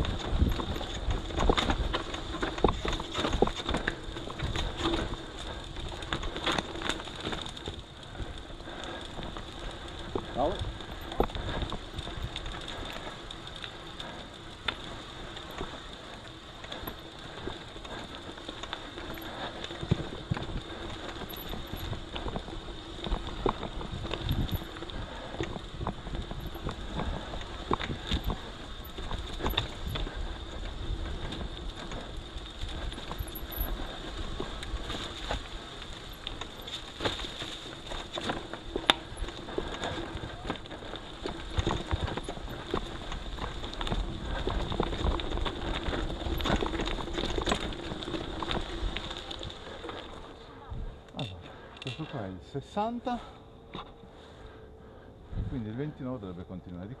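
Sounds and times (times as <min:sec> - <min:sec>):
bike rattling over bumps: 0:00.0 - 0:52.4
bike tyres rolling on dirt: 0:00.0 - 0:57.0.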